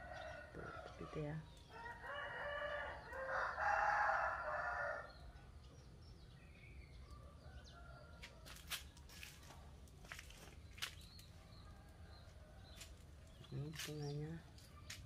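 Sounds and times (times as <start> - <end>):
rooster crowing: 1.7 - 5.1.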